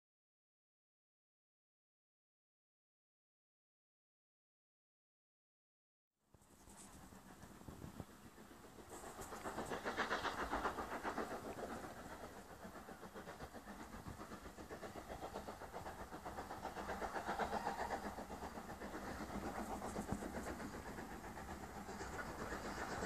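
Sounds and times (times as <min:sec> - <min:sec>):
steam locomotive chuffing: 0:06.4 - 0:23.0.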